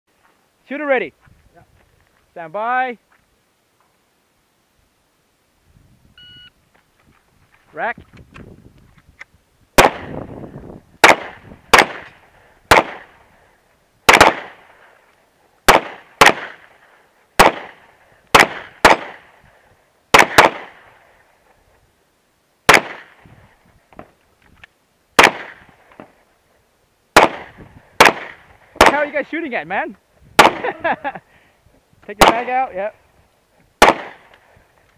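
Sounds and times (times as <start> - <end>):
handgun shots: 14.1 - 14.6, 18.4 - 19.2, 25.2 - 25.6, 27.2 - 29.0, 30.4 - 30.7, 33.8 - 34.3.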